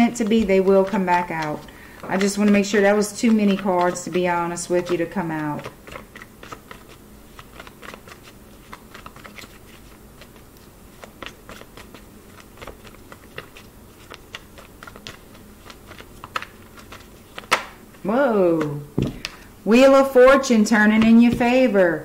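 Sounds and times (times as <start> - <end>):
cards being shuffled: 0.0 - 19.5.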